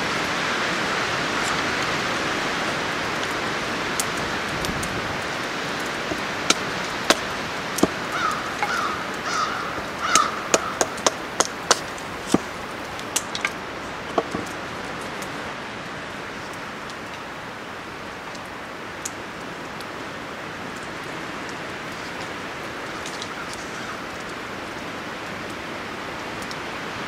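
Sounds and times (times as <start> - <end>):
crow cawing: 7.9 - 11.7, 22.8 - 24.3.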